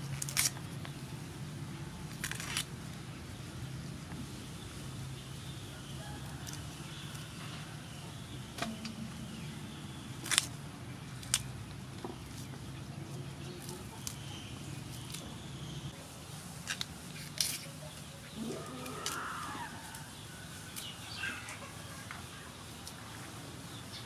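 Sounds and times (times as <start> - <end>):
plant stems snapping: 0.2 - 0.6, 2.1 - 2.7, 10.2 - 10.6, 11.2 - 11.5, 18.8 - 19.3
steady low hum: 7.7 - 16.3
bird calling: 17.8 - 22.8.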